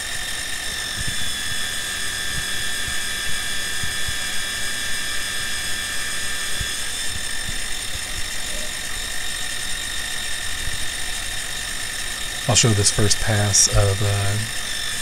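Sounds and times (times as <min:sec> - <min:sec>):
metal cutting noise: 0:00.0 - 0:15.0
milling machine whine: 0:00.0 - 0:15.0.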